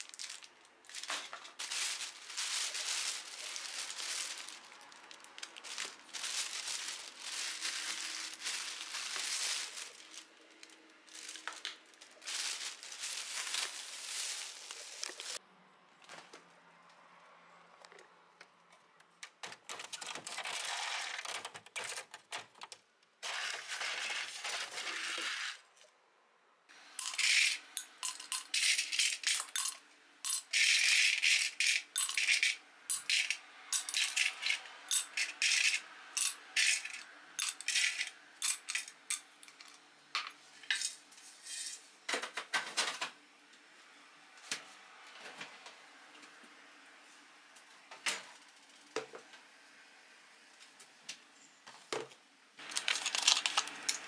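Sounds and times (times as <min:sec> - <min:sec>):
rustling and scraping of ice: 0:00.0 - 0:15.4, 0:23.2 - 0:25.8, 0:30.3 - 0:39.8, 0:52.6 - 0:54.0
ice cubes clinking into a glass: 0:27.0 - 0:38.9, 0:52.6 - 0:54.0.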